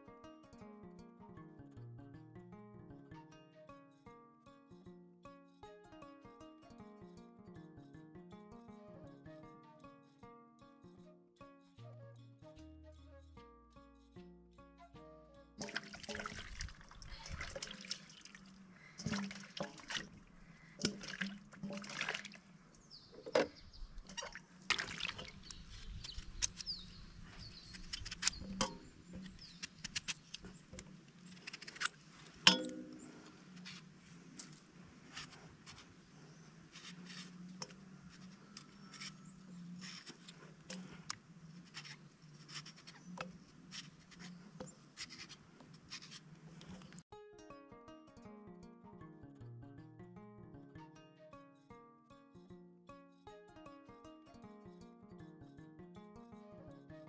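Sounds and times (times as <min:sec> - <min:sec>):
water sloshing in steel basin: 0:15.6 - 0:22.5, 0:23.2 - 0:25.5.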